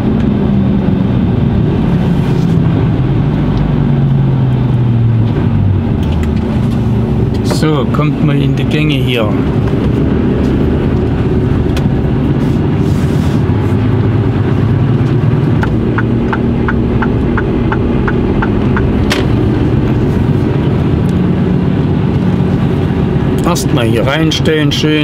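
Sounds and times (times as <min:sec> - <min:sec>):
truck diesel engine running: 0:00.0 - 0:25.0
turn indicator ticking: 0:15.0 - 0:19.8.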